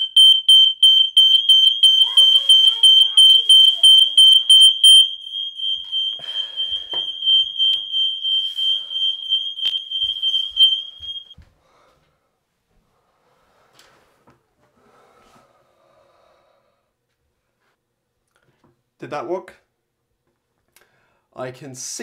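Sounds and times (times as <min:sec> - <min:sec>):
high-pitched pulsing smoke alarm: 0:00.0 - 0:11.4.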